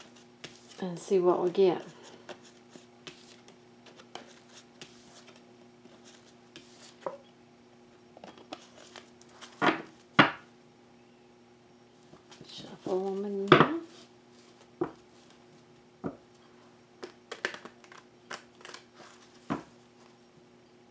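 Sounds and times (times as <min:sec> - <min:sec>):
faint steady hum: 0:00.0 - 0:20.9
cards clicking and rustling: 0:17.0 - 0:19.5.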